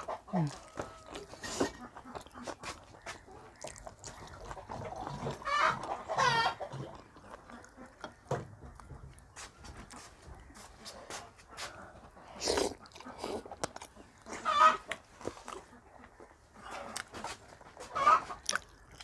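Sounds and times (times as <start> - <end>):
chicken squawking: 4.6 - 6.9, 14.3 - 14.9, 17.8 - 18.4.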